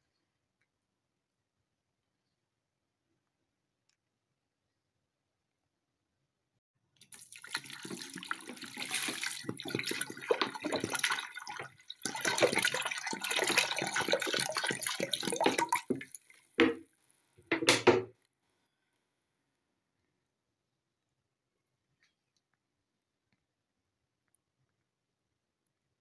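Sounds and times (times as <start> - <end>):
water splashing into a pot: 7.0 - 16.9.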